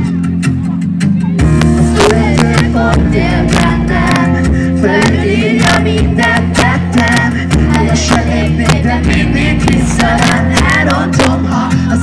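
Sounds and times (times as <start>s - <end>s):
bass line: 0.0s - 12.0s
live pop band: 0.0s - 12.0s
man singing into microphone: 1.9s - 12.0s.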